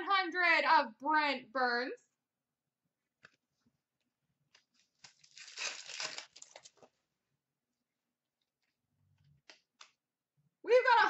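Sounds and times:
foil wrapper crinkling: 0:04.7 - 0:06.9.

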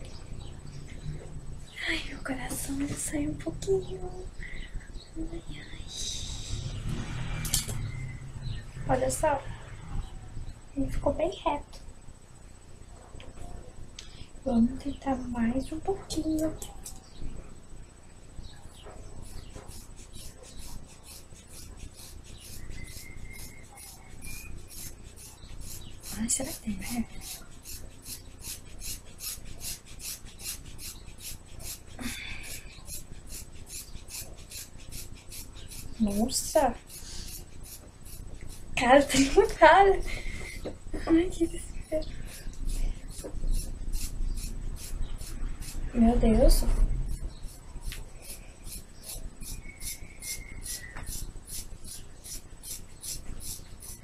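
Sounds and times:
scissors cutting hair: 0:07.4 - 0:07.8, 0:19.2 - 0:39.6, 0:41.8 - 0:54.0.

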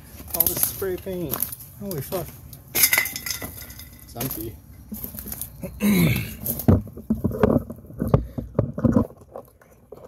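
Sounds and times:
footsteps crunching over rubble: 0:00.0 - 0:10.0.

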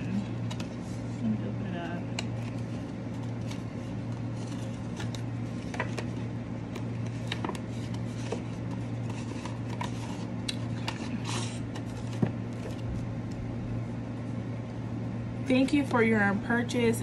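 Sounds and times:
paper envelope rustling: 0:00.0 - 0:01.3, 0:02.2 - 0:13.4.

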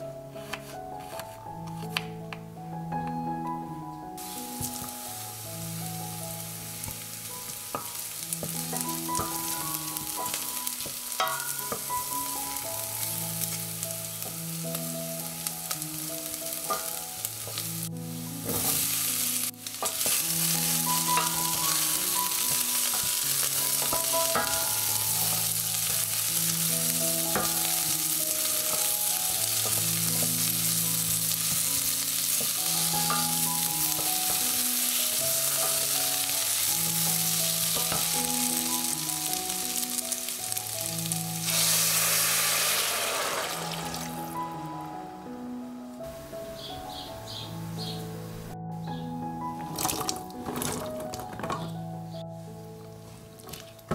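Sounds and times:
vegetables sizzling in hot oil: 0:04.2 - 0:44.9.

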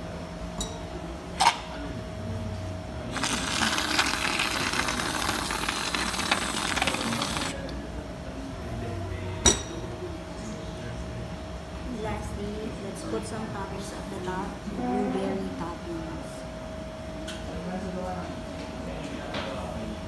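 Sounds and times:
cream dispenser hissing and spluttering: 0:03.1 - 0:07.6.

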